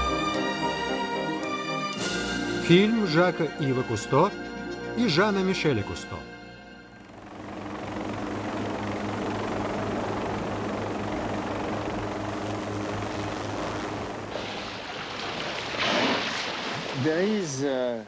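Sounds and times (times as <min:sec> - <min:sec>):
helicopter engine and rotor: 0:00.0 - 0:14.4.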